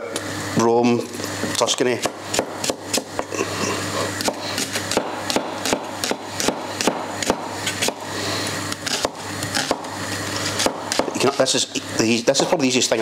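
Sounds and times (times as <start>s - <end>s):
knife chopping on wooden board: 2.0s - 3.3s, 4.2s - 8.1s, 8.7s - 11.4s.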